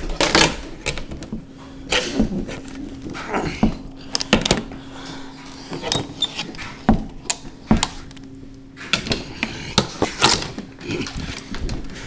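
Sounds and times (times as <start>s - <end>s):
faint steady hum: 0.0s - 12.0s.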